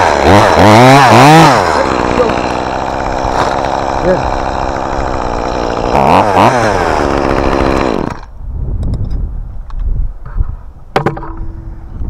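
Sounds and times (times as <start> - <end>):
chainsaw running at high revs: 0.0 - 8.3.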